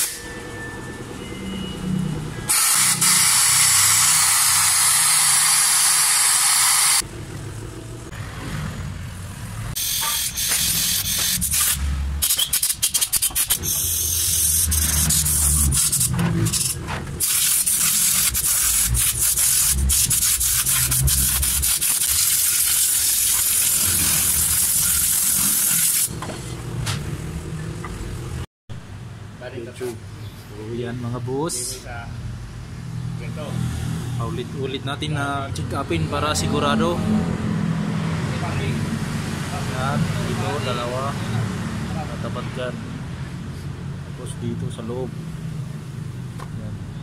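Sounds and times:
air gun blasts hissing: 9.8 - 16.0, 17.2 - 26.1.

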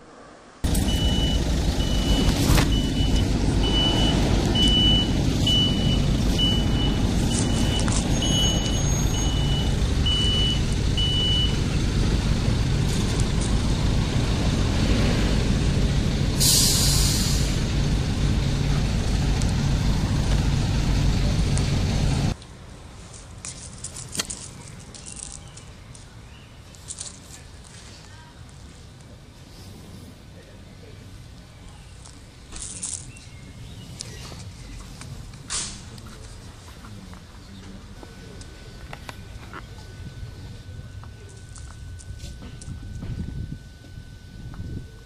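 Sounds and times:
diesel truck engine running: 0.6 - 22.4, 31.2 - 45.0
reversing alarm beeping: 0.7 - 11.7, 39.0 - 45.0
air hiss: 16.4 - 17.6.

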